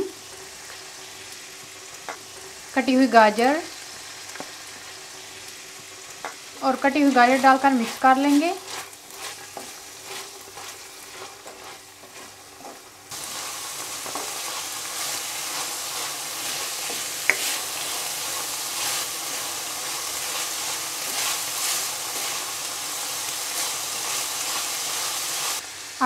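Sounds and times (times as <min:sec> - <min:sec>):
food sizzling in a wok: 0:00.0 - 0:26.0
spatula scraping a wok: 0:06.5 - 0:25.6.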